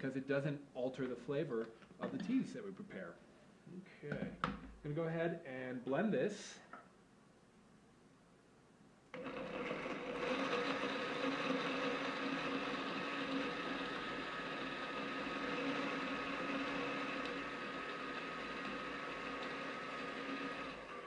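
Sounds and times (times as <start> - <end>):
blender running: 9.1 - 21.0.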